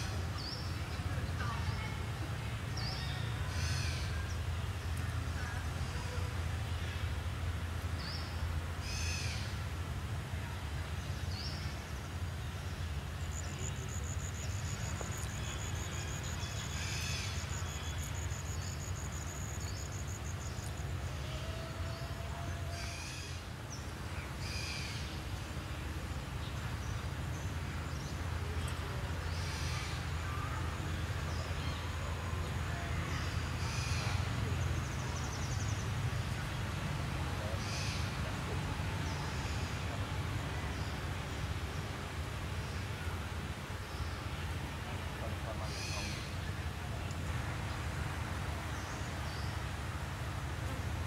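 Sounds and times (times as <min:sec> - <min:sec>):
birds chirping: 0:10.9 - 0:47.9.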